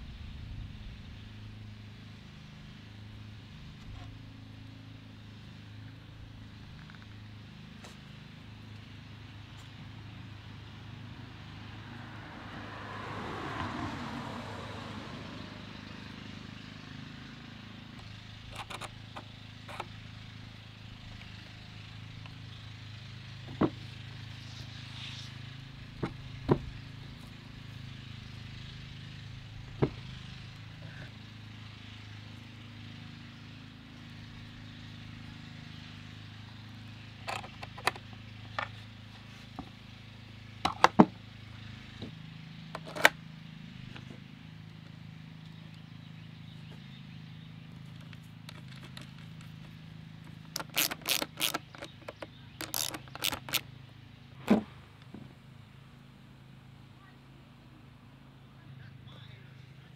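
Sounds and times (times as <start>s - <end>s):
car passing: 8.5s - 18.4s, 38.8s - 59.9s.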